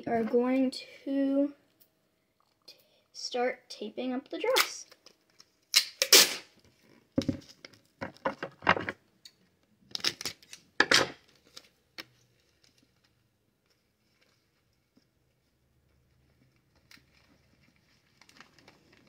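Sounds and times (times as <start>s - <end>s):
packing tape pulled and torn: 4.5s - 6.6s, 9.9s - 13.1s.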